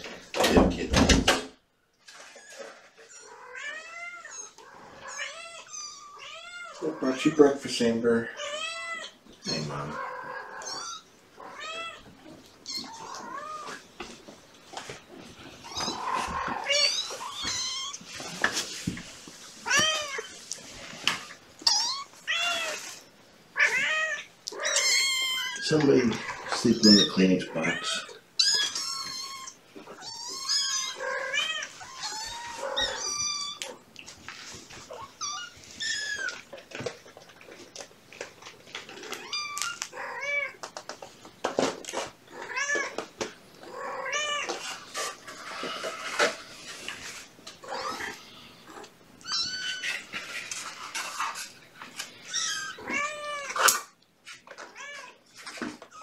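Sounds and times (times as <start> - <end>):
kittens mewing: 8.4 - 13.8, 23.6 - 33.8, 47.6 - 50.1.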